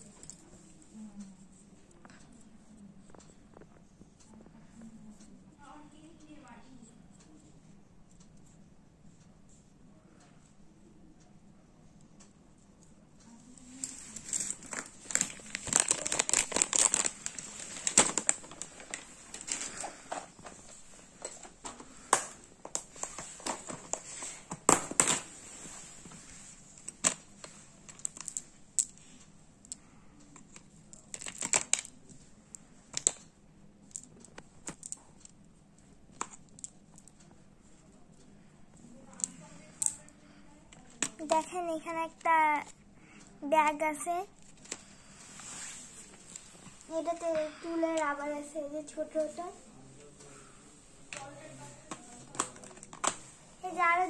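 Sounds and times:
plastic packaging crinkling: 13.6 - 20.6.

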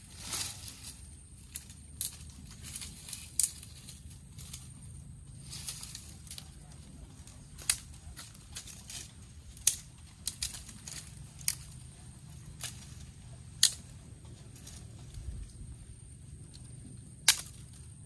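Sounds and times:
low steady rumble: 0.0 - 18.0
fire crackling and popping: 7.5 - 13.9.

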